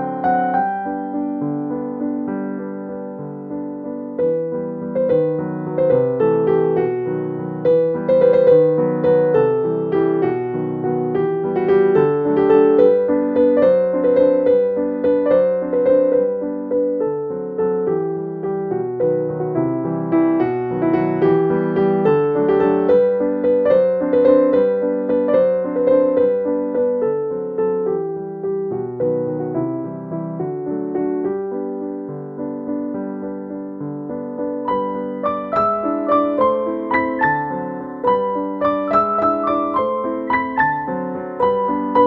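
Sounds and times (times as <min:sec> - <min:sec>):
piano melody: 0:00.0 - 0:42.0.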